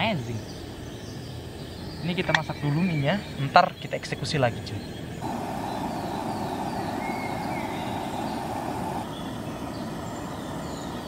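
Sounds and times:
faint falling chirps: 0:05.2 - 0:11.0
gas stove burner rushing: 0:05.2 - 0:11.0.

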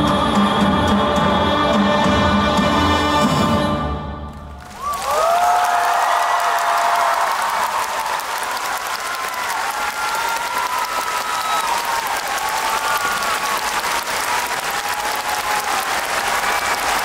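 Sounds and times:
audience applauding: 0:04.5 - 0:17.0.

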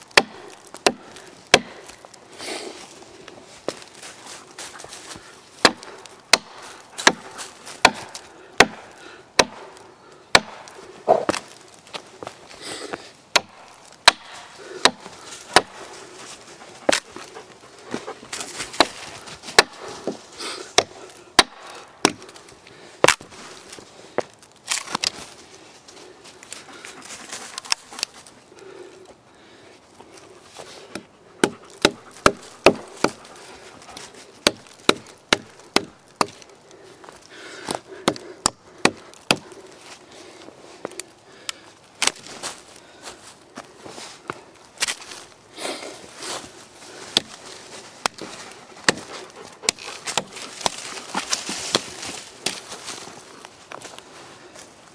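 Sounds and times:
hatchet chopping into wood: 0:00.1 - 0:02.0, 0:05.6 - 0:11.5, 0:13.3 - 0:15.8, 0:18.7 - 0:22.4, 0:30.9 - 0:33.3, 0:34.4 - 0:36.5, 0:37.7 - 0:39.5, 0:47.1 - 0:47.4, 0:48.0 - 0:52.6.

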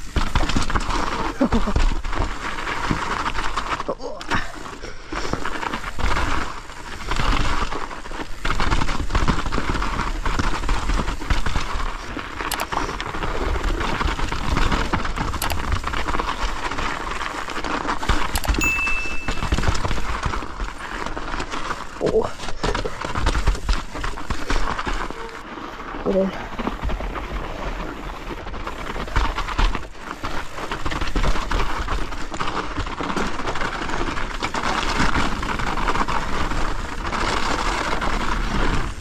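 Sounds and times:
bike knocks and rattles: 0:00.0 - 0:03.8
bike tyre riding noise: 0:00.0 - 0:39.0.

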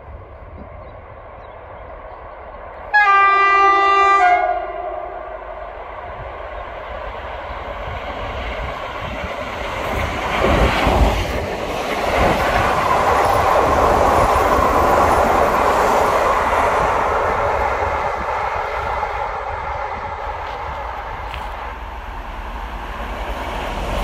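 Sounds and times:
train carriages rolling clickety-clack: 0:07.8 - 0:24.0.

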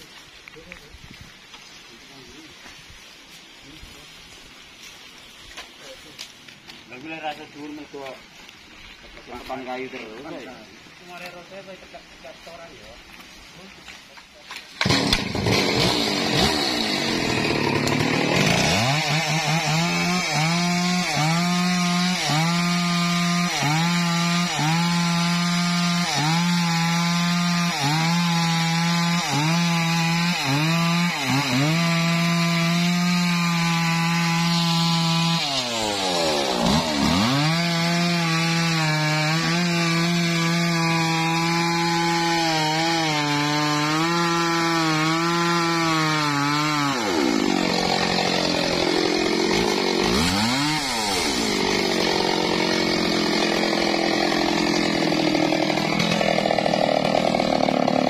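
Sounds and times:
chainsaw cutting tree trunk: 0:14.7 - 0:58.0.

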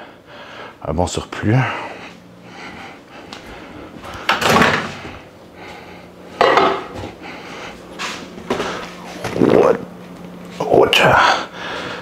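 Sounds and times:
door opening and shutting: 0:04.3 - 0:05.1.

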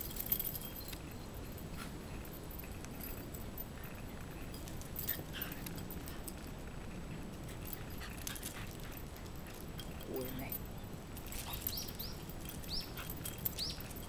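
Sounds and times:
dogs scuffling on pavement: 0:00.0 - 0:14.0
low background noise: 0:00.0 - 0:14.0.

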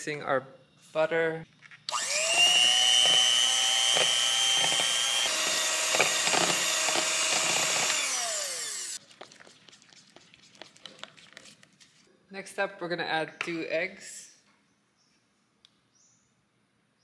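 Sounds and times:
electric hand mixer motor whine: 0:01.9 - 0:09.0.

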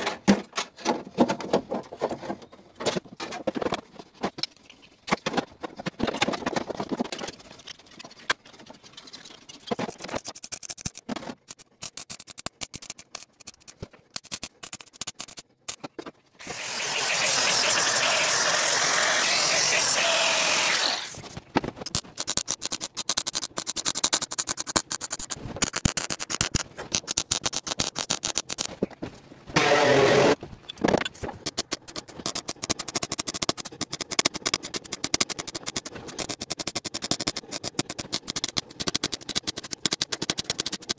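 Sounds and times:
angle grinder cutting steel: 0:16.4 - 0:21.2, 0:29.6 - 0:30.4
welder crackling arc: 0:16.4 - 0:28.6.

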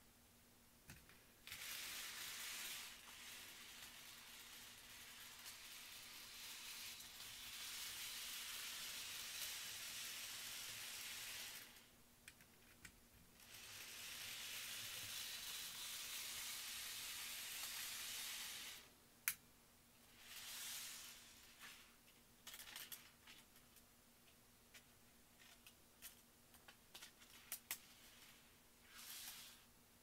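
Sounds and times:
model train motor whirring: 0:01.4 - 0:11.9, 0:13.4 - 0:18.9, 0:20.1 - 0:21.6, 0:28.9 - 0:29.6.

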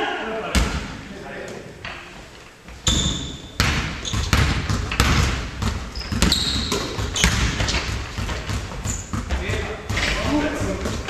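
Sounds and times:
footfalls echoing: 0:00.0 - 0:11.0
basketball bouncing on hardwood floor: 0:02.9 - 0:11.0.

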